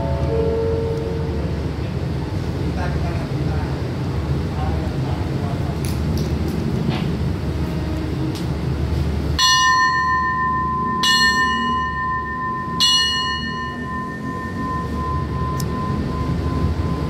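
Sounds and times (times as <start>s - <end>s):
diesel locomotive idling: 0.0s - 17.0s
metal bell ringing: 9.4s - 17.0s.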